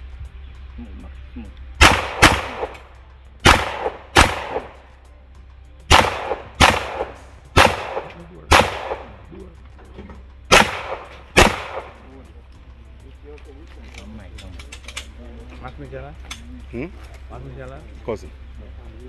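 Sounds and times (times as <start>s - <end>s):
gunshots in pairs: 1.8s - 4.8s, 5.9s - 9.3s, 10.5s - 12.1s.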